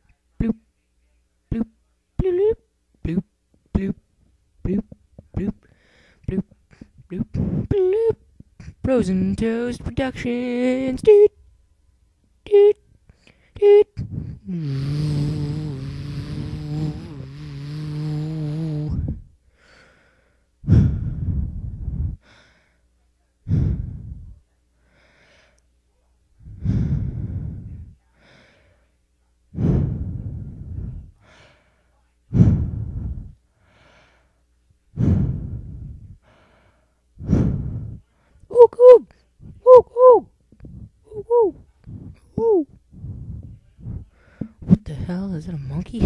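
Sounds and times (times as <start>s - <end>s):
heavy sleepy breathing: 13.2s - 25.6s, 26.4s - 28.9s, 29.5s - 38.4s, 40.6s - 45.2s
person humming a note: 13.6s - 19.0s.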